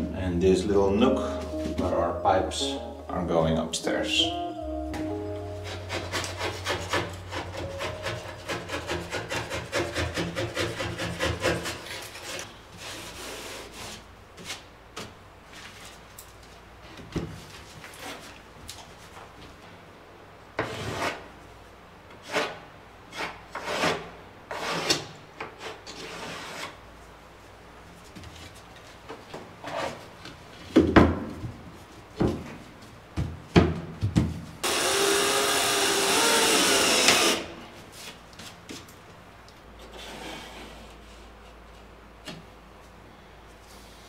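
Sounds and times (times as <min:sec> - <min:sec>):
cordless drill running: 0:34.6 - 0:37.5.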